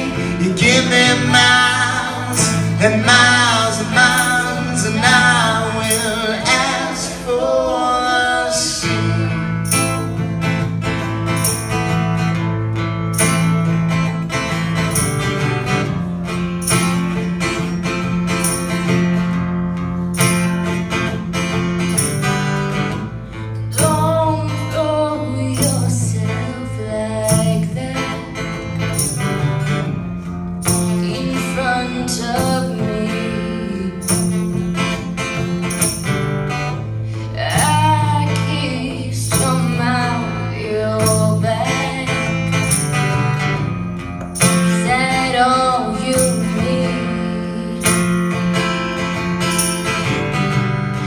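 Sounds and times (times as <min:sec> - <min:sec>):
woman singing: 0:00.0 - 0:09.7, 0:23.8 - 0:28.7, 0:30.7 - 0:34.6, 0:37.3 - 0:42.6, 0:44.4 - 0:48.2
acoustic guitar strumming: 0:00.0 - 0:51.0.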